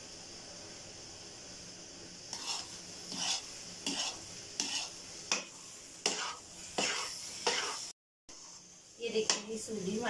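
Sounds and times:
ghee sizzling in a pan: 0.0 - 10.0
metal spoon scraping a pan: 2.3 - 9.5.

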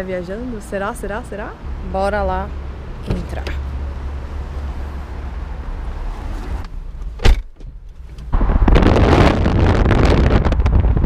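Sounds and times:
car door shutting: 6.3 - 8.4
low rumble: 8.2 - 11.0
wind buffeting microphone: 8.2 - 11.0.

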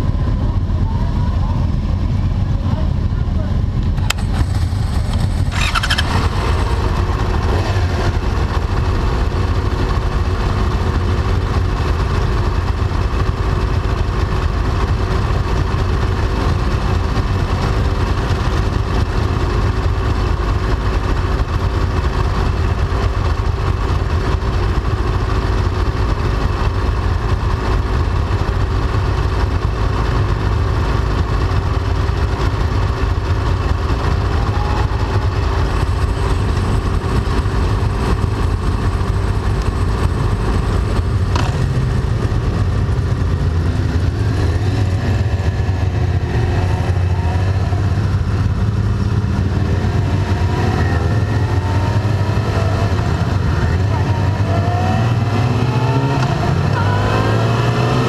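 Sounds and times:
motorcycle idling close: 0.0 - 58.0
other motorcycles idling: 0.0 - 58.0.

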